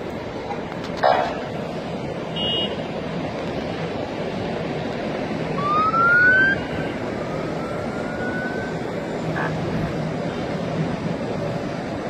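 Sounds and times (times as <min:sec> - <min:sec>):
road traffic noise: 0:00.0 - 0:12.0
siren rising in pitch: 0:05.6 - 0:08.8.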